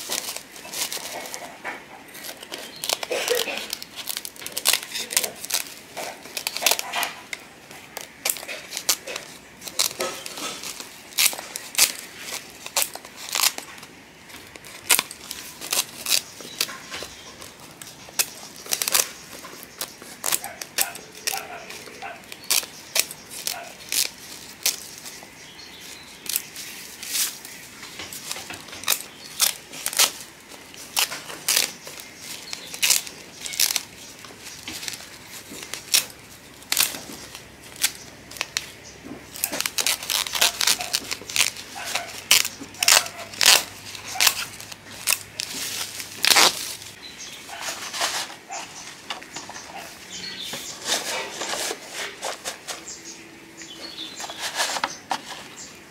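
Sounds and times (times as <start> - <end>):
plastic sack crinkling: 0.0 - 55.9
scissors snipping plastic sack: 14.4 - 25.2, 28.0 - 46.8.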